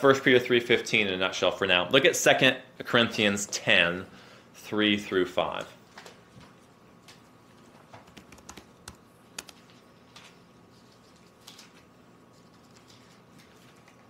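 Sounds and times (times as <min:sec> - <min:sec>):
pages rustling: 0:05.9 - 0:14.0.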